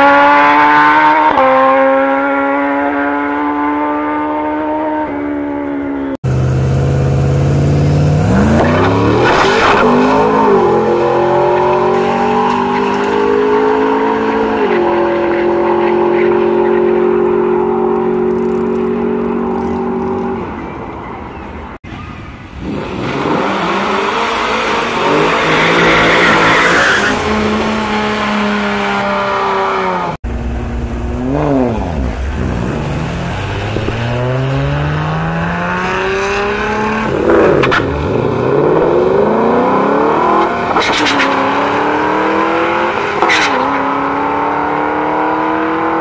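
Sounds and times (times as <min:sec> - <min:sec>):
engines revving: 0:00.0 - 0:20.8, 0:22.4 - 0:46.0
car engine idling: 0:30.2 - 0:33.6.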